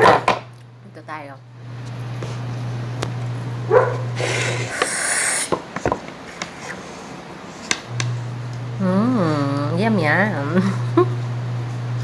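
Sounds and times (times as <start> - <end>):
low steady hum: 6.5 - 12.0.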